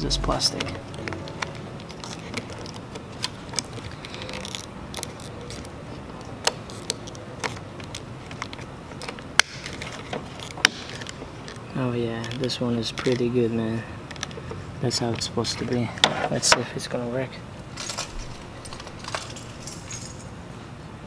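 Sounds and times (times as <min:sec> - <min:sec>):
plastic trim clicks and creaks: 0:00.5 - 0:13.4.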